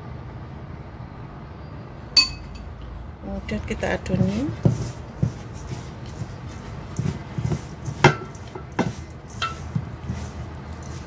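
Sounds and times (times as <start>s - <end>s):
hands mixing dough: 3.3s - 11.0s.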